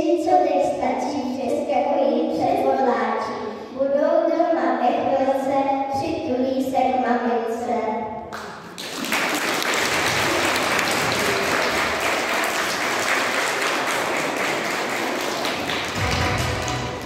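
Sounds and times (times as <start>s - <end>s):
child's voice: 0.0s - 8.1s
audience applauding: 8.8s - 17.0s.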